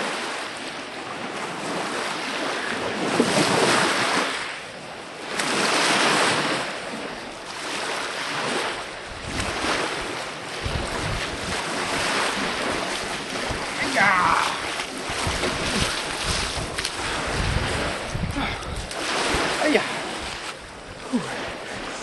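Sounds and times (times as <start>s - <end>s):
waves washing onto shore: 0.0s - 22.0s
wind buffeting microphone: 5.4s - 22.0s.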